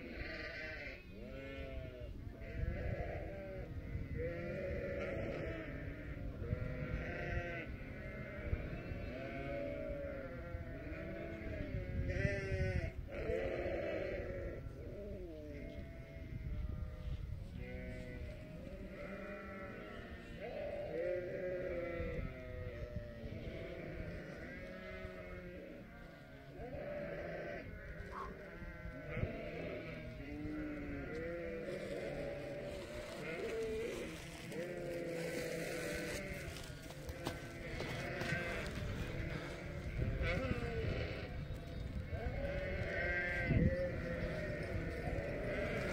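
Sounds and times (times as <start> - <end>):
sheep bleating: 0.0 - 45.9.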